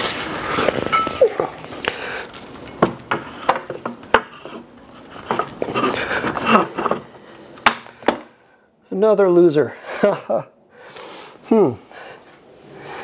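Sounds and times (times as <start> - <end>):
weight scraping: 2.7 - 7.7.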